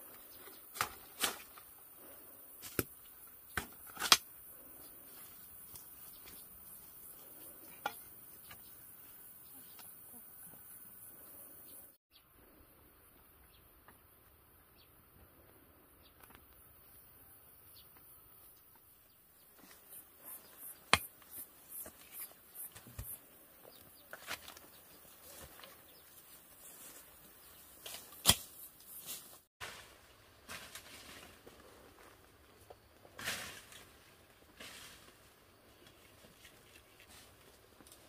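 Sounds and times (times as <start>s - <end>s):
leaves and stalks rustling: 0.0s - 9.9s, 19.4s - 38.0s
plant stalks snapping: 3.5s - 4.2s, 27.8s - 28.5s.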